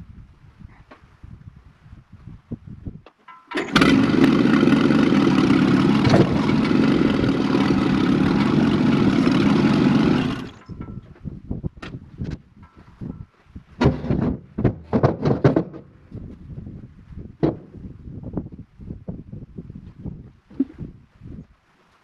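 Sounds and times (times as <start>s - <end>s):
tractor engine running: 3.3s - 11.2s.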